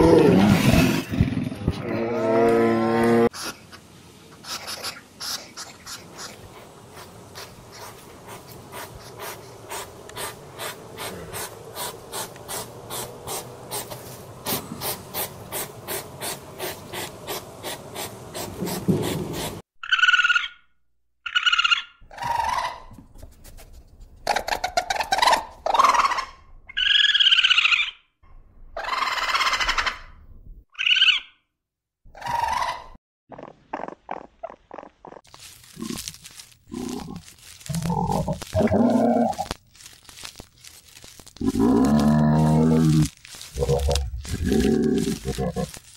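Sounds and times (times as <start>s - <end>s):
hedgehog sniffing and snuffling: 4.4s - 19.6s, 33.4s - 45.9s
raccoon squealing calls: 30.8s - 31.4s.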